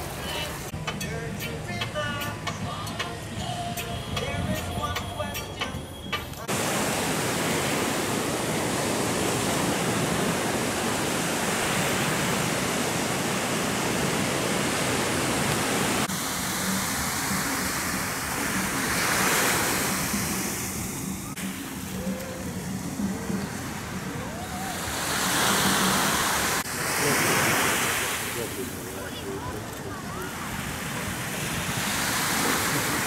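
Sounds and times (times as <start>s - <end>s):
waves breaking on beach: 0.0s - 0.8s, 6.4s - 33.0s.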